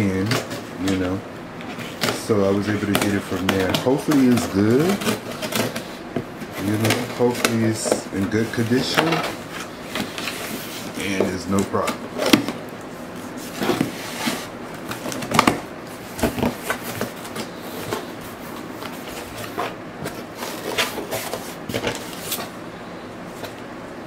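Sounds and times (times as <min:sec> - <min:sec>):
scissors cutting cardboard: 0:01.8 - 0:12.6.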